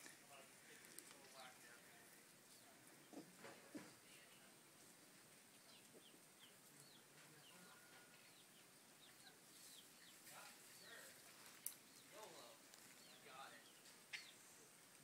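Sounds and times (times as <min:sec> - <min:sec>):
small bird chirping: 0:05.2 - 0:15.0.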